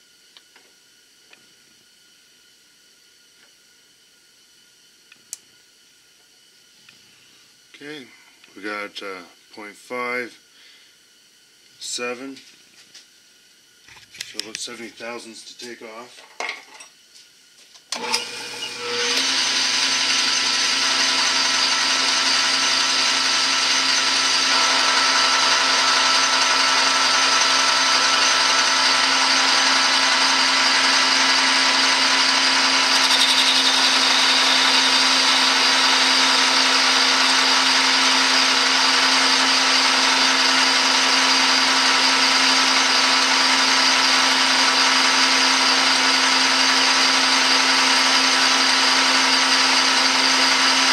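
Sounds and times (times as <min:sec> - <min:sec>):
metal lathe motor whine: 0:17.9 - 0:50.9
lathe tool cutting hiss: 0:18.0 - 0:50.9.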